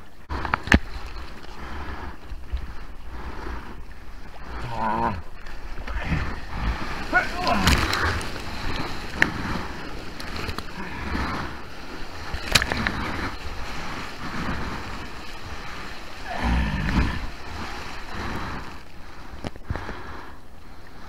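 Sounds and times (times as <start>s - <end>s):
breaking wave splashing: 4.4s - 19.1s.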